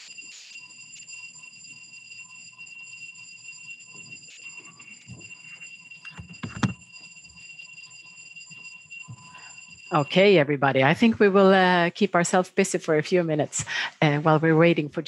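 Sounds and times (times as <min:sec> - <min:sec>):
rustling and handling noise: 0:00.0 - 0:01.2, 0:03.9 - 0:07.5
fire alarm high-pitched tone: 0:00.0 - 0:15.0.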